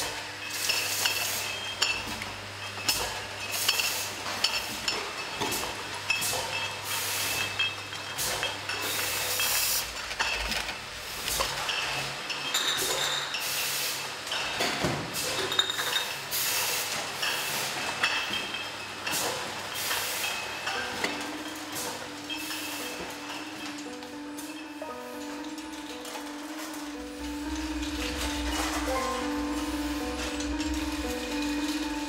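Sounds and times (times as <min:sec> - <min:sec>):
glass bottles clinking: 0:00.4 - 0:10.7, 0:11.3 - 0:13.6, 0:14.3 - 0:16.3, 0:17.0 - 0:32.0
machinery hum: 0:16.2 - 0:32.0.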